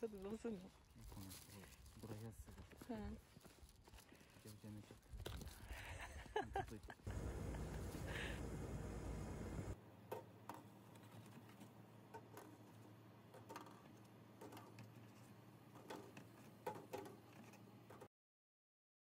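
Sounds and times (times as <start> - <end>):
outdoor noise: 0.0 - 18.1
faint low hum: 7.1 - 9.8.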